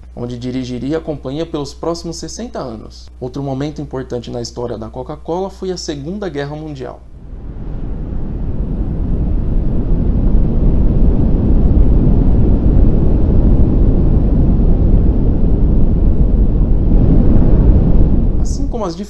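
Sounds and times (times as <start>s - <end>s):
deep rumbling: 7.0s - 19.0s.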